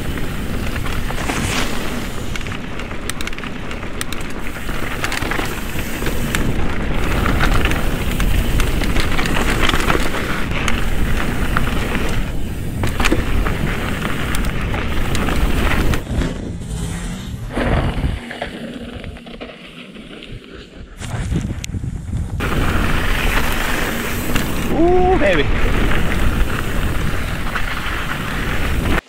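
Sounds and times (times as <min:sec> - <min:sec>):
bike clicks and knocks: 0:00.0 - 0:16.5, 0:22.1 - 0:24.7
wind rumble on microphone: 0:00.0 - 0:19.4, 0:20.2 - 0:29.0
bike tyres crunching over dirt: 0:00.0 - 0:29.0.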